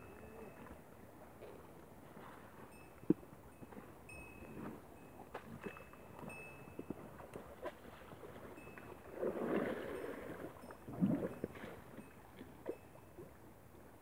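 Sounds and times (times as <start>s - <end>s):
water sloshing and splashing: 0.2s - 13.4s.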